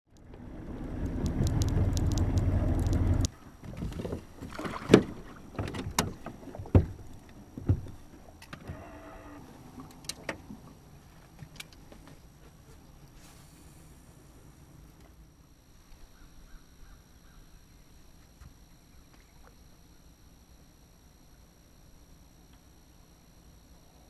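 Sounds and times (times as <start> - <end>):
low rumble: 0.1 - 3.3
knocks and thumps on boat deck: 3.6 - 8.3.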